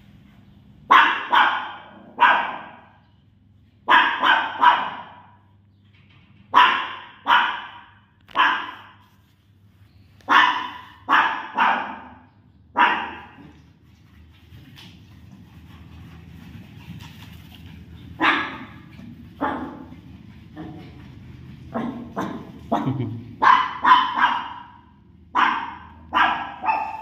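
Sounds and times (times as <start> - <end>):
puppy yapping: 10.3 - 13.6, 18.0 - 20.0, 21.7 - 27.0.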